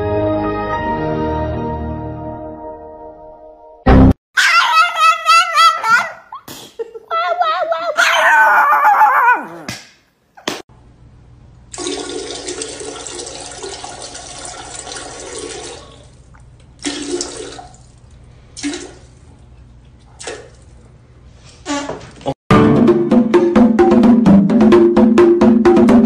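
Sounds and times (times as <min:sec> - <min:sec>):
small dog howling: 0:04.4 - 0:06.4, 0:07.1 - 0:09.7
toilet flushing: 0:11.7 - 0:18.0, 0:18.6 - 0:19.2.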